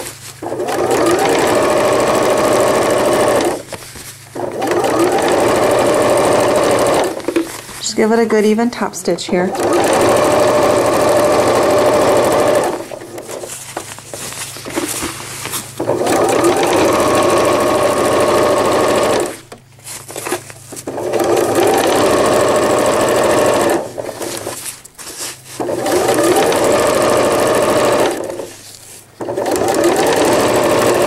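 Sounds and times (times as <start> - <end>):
electric sewing machine stitching: 0.0 - 3.7, 4.4 - 7.4, 9.3 - 13.5, 15.8 - 19.4, 20.8 - 24.6, 25.6 - 28.6, 29.2 - 31.0.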